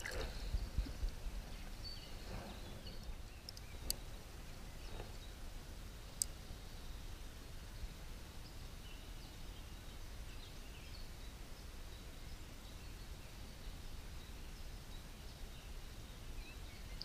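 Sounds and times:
gently flowing river water: 0.0 - 1.8
faint bird chirps: 6.1 - 17.0.

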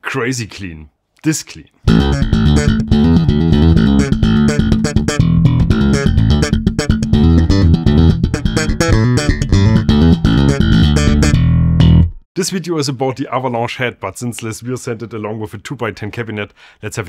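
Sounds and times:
slap electric bass: 1.9 - 12.2.

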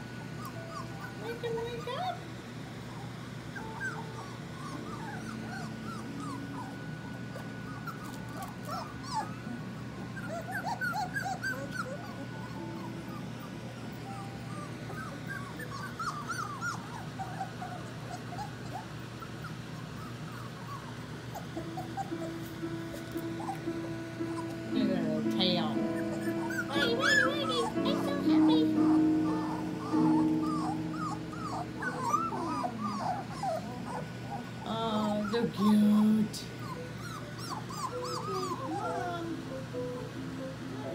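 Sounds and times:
puppies whimpering and squeaking: 0.0 - 40.9.

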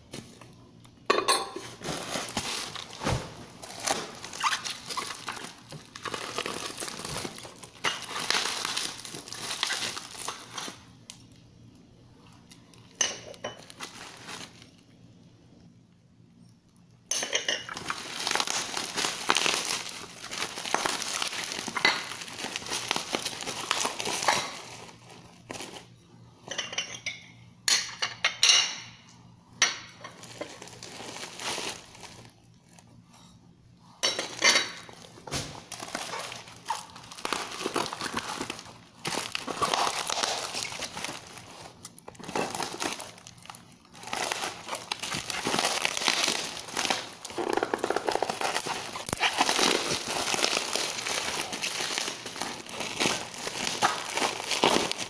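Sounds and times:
ceramic plates clinking: 1.1 - 1.6
plastic packaging crinkling: 1.6 - 11.4, 12.2 - 15.0, 17.2 - 26.0, 29.9 - 33.0, 34.0 - 55.0.

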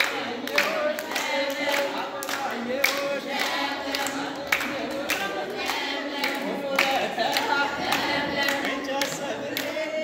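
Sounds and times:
group singing in unison: 0.0 - 10.0
rhythmic hand clapping: 0.0 - 10.0.

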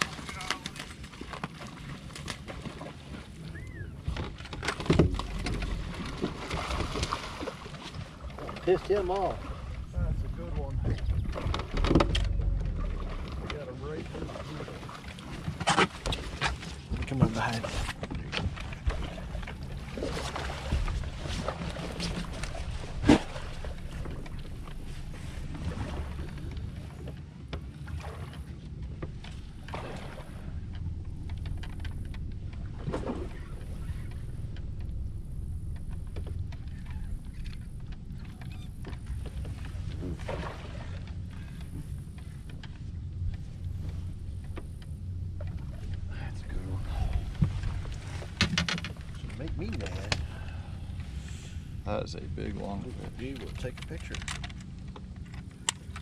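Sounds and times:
water noise: 0.0 - 56.0
low rumble: 3.2 - 56.0
bird chirp: 3.5 - 4.0
light clicks and knocks: 47.1 - 50.3, 52.6 - 56.0.

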